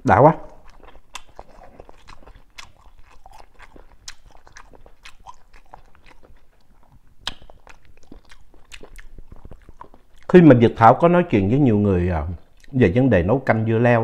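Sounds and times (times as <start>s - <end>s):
man chewing with wet smacks: 0.4s - 10.6s, 12.3s - 12.8s.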